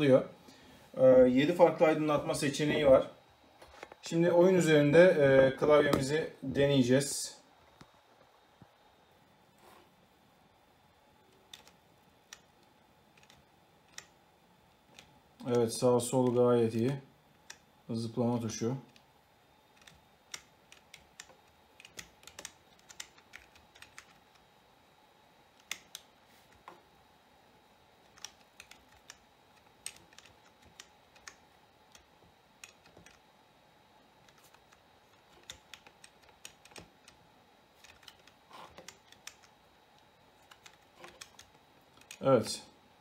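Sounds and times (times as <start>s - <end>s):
keyboard keys clicking: 11.5s - 12.5s, 13.1s - 14.1s, 19.8s - 24.4s, 25.6s - 26.1s, 28.1s - 33.2s, 34.2s - 37.2s, 37.8s - 39.5s, 40.4s - 42.2s.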